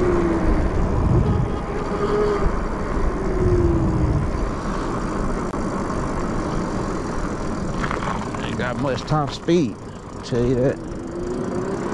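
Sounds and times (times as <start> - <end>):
wind buffeting microphone: 0.0 - 5.5
electric motor whine: 0.0 - 8.6, 10.4 - 11.9
tyre noise on asphalt: 2.5 - 8.9.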